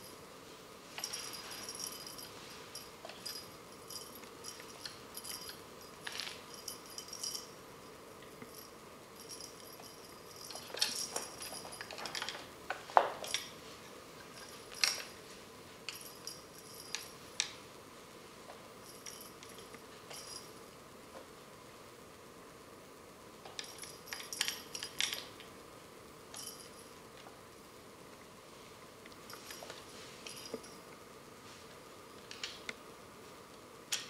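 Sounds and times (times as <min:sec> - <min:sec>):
toy jingling and rattling: 0:01.0 - 0:07.5, 0:08.5 - 0:12.5, 0:14.2 - 0:15.2, 0:15.9 - 0:17.3, 0:18.8 - 0:20.6, 0:23.6 - 0:25.4, 0:26.3 - 0:27.0, 0:29.3 - 0:30.8.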